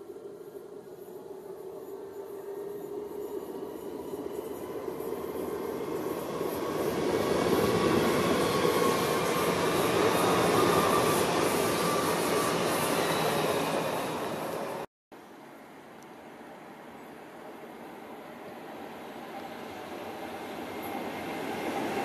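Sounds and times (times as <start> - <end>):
train passing at speed: 0.0 - 14.9, 17.4 - 22.0
high whine of train: 0.0 - 22.0.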